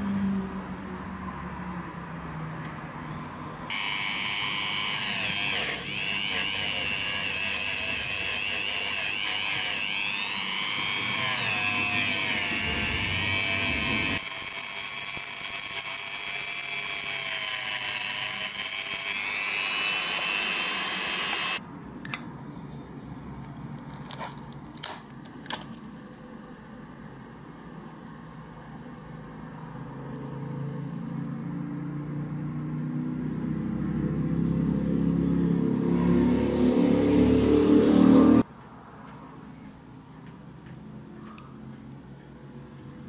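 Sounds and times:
rotary tool wire brush whining: 3.7 - 21.6.

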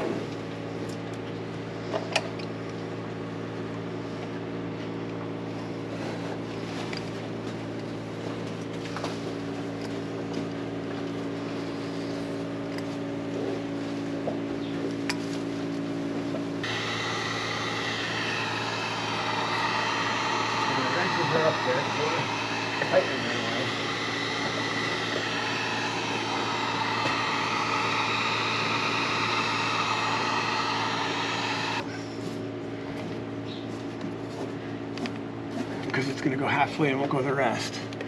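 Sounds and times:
mechanical hum: 0.0 - 38.0
loud hiss: 16.6 - 31.9.

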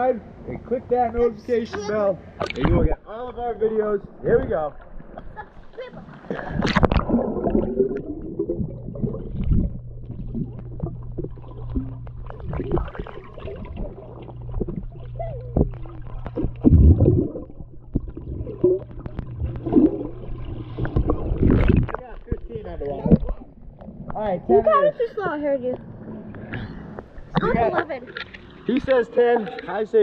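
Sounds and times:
steady low hum: 0.0 - 30.0
underwater gurgling and bubbles: 4.4 - 24.5
underwater clicks and knocks: 6.6 - 24.2.

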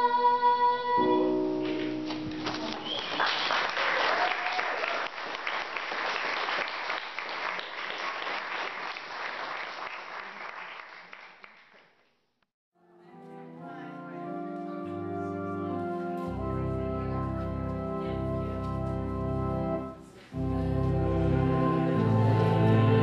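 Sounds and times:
congregation applauding: 1.6 - 12.1.

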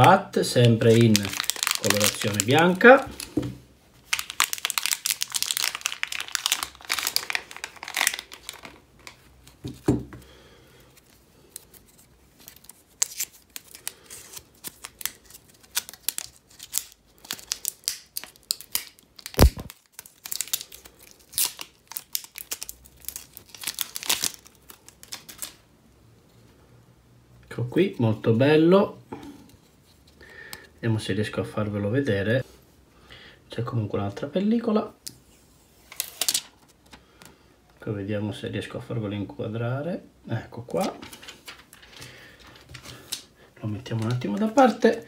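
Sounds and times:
plastic wrap crinkling: 0.0 - 9.8, 11.0 - 25.6, 40.7 - 45.0.

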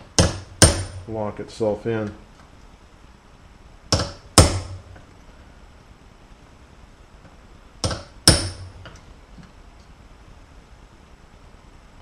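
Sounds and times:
hammer striking steel punch: 0.1 - 1.0, 4.0 - 4.9, 7.8 - 8.8.

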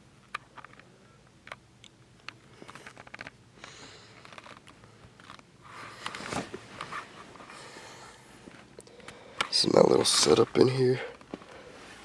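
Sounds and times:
faint clicks and rustling: 0.2 - 7.6.

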